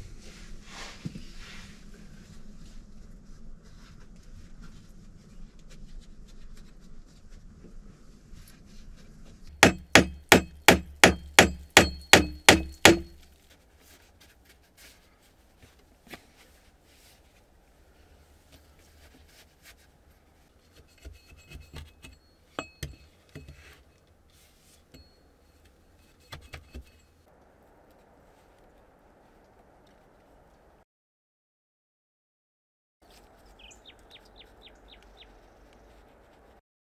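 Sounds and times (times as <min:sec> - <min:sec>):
hammer driving a nail into wood: 0:09.5 - 0:13.2
light knocks and clinks: 0:20.8 - 0:24.0.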